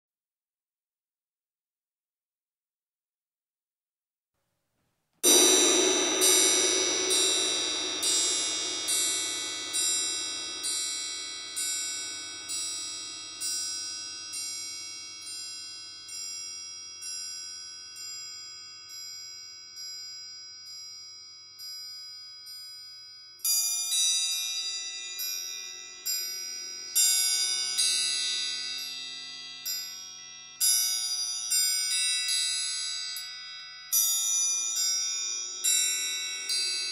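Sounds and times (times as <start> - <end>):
suspended cymbal ringing: 5.2 - 20.8, 23.4 - 33.3, 34.6 - 36.9
triangles ringing: 5.2 - 36.9.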